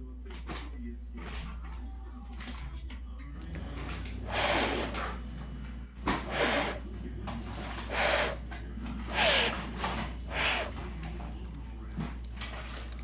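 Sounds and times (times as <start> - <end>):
breath puffs blowing: 4.2 - 5.3, 6.1 - 6.8, 7.7 - 8.4, 9.1 - 9.6, 10.2 - 10.8.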